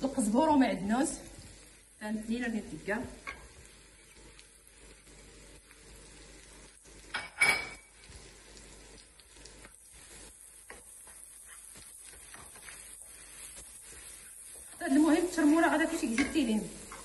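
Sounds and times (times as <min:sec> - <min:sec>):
food sizzling in a frying pan: 0:00.0 - 0:17.0
wooden spoon stirring and scraping: 0:09.5 - 0:17.0.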